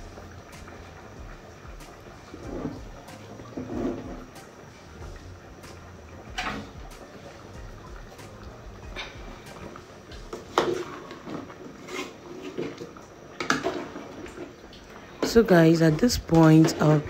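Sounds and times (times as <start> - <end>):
ladle scraping metal pot: 2.3 - 4.4, 8.9 - 14.5.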